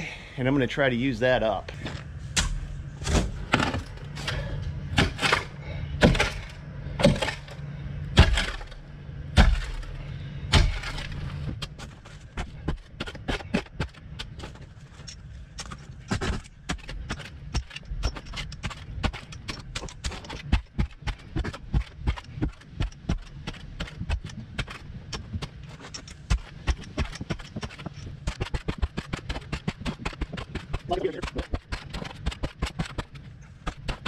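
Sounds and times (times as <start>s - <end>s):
low hum: 0.0s - 34.0s
shovel chopping into dirt: 8.2s - 8.8s, 9.4s - 9.9s, 10.5s - 11.8s, 16.1s - 34.0s
shovel scraping and clicking: 10.7s - 34.0s.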